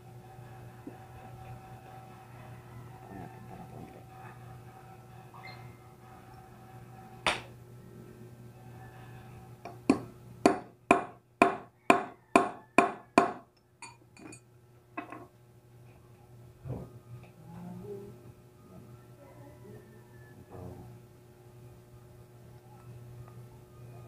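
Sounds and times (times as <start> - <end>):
hammer striking metal pipe: 9.9 - 13.4.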